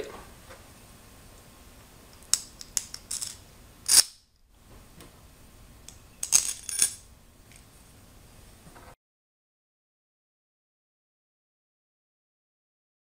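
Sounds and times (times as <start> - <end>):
bolts clinking against metal: 5.9 - 7.0.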